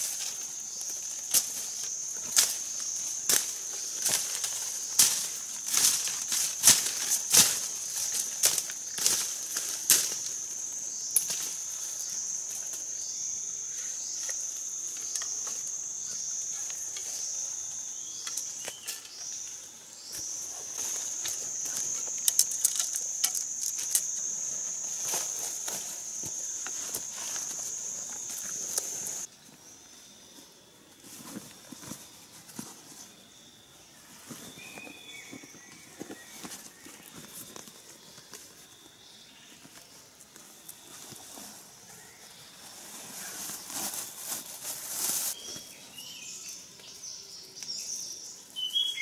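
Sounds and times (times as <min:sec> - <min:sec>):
dry leaves crackling and rustling: 0:00.0 - 0:10.4, 0:42.6 - 0:45.6
insects droning: 0:00.0 - 0:49.0.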